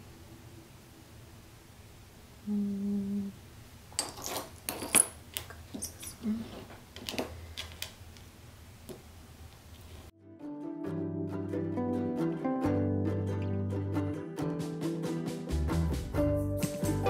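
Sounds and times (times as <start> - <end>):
glass and metal tools clinking: 3.9 - 6.3.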